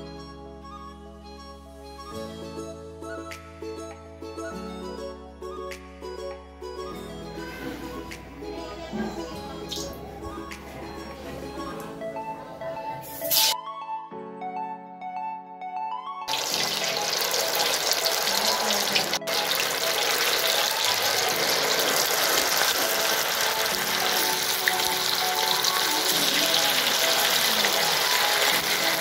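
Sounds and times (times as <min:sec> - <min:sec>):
food deep-frying in oil: 0:16.3 - 0:29.0.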